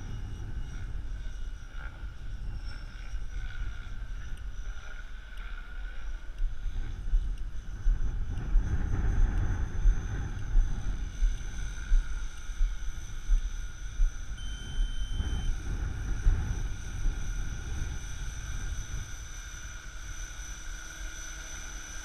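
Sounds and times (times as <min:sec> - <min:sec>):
helicopter engine and rotor whine: 0:00.0 - 0:22.0
gusty low rumble: 0:06.4 - 0:19.2.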